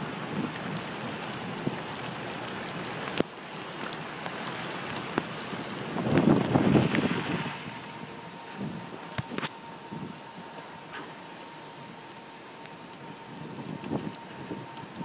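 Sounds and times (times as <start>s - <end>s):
raindrop ticks: 0.0s - 7.1s, 10.5s - 15.0s
rain hissing: 0.0s - 15.0s
wind buffeting microphone: 5.8s - 10.2s, 13.3s - 15.0s.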